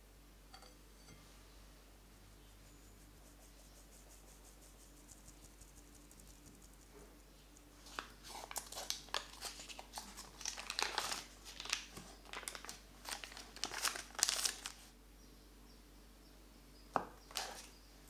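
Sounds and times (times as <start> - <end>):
paper wrapper crinkling: 7.8 - 14.9, 17.3 - 17.7.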